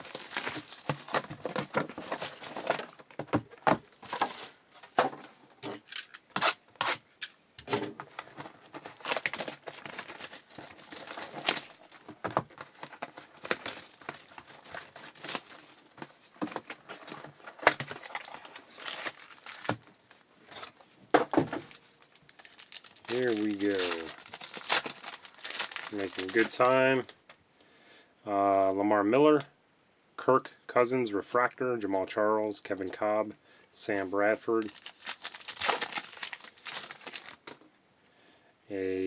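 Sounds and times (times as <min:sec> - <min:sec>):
plastic and foil wrapping crinkling: 0:00.0 - 0:04.9, 0:08.1 - 0:27.2, 0:34.0 - 0:37.7.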